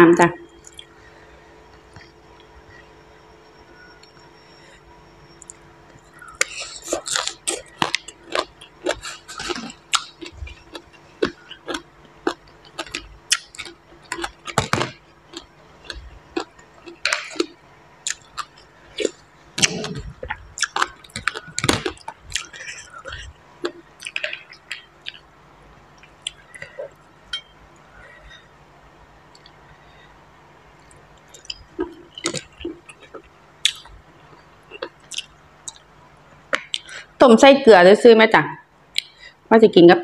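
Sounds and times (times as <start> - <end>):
crunchy chewing: 3.7 - 28.5, 30.8 - 37.0.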